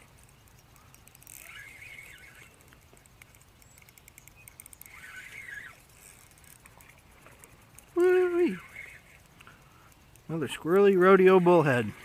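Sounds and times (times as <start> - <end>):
small bird chirping: 0.0 - 6.9
fishing reel ticking: 0.0 - 12.0.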